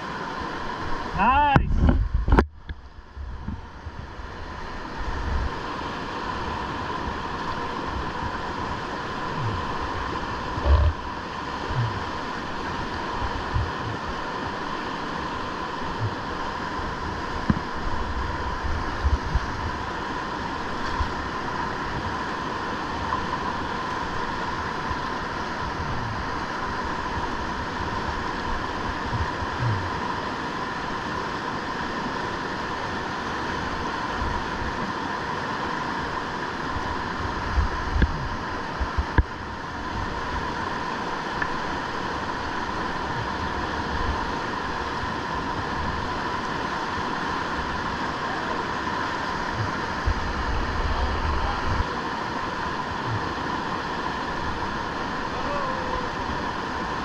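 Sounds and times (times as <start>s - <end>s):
river whitewater rushing: 0.0s - 1.7s, 2.8s - 57.0s
thumps on microphone: 10.6s - 11.0s, 13.5s - 14.0s.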